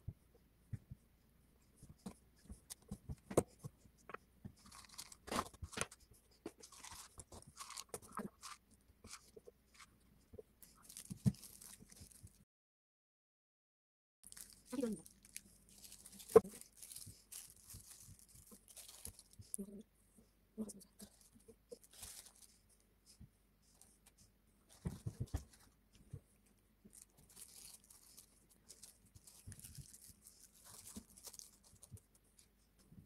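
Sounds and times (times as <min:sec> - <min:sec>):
crinkling of paper wrappers: 0:04.1 - 0:09.9, 0:10.6 - 0:12.4, 0:14.2 - 0:19.6, 0:21.0 - 0:22.6, 0:24.7 - 0:25.8, 0:26.9 - 0:32.5.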